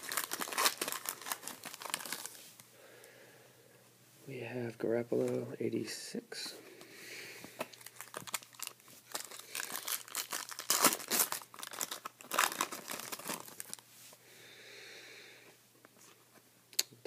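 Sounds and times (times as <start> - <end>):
foil wrapper tearing and crinkling: 0.0 - 2.4, 7.8 - 13.8.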